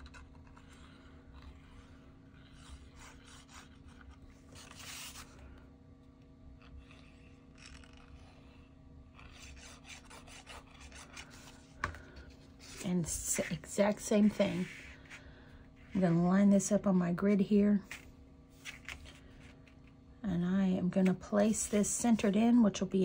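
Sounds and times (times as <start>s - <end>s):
cardstock rubbing and scraping: 0.0s - 5.4s, 6.6s - 8.6s, 9.2s - 16.2s
low steady hum: 0.0s - 23.0s.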